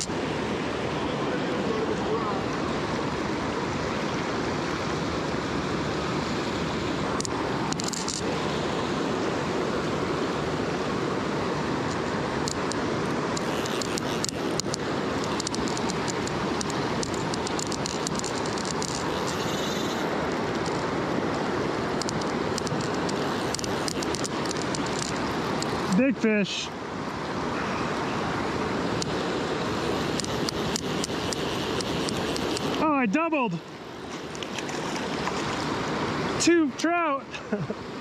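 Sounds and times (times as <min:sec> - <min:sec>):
river rushing over rocks: 0:00.0 - 0:38.0
fly reel ticking: 0:07.2 - 0:08.2, 0:12.4 - 0:20.9, 0:22.0 - 0:25.9, 0:29.0 - 0:32.9, 0:34.0 - 0:35.6.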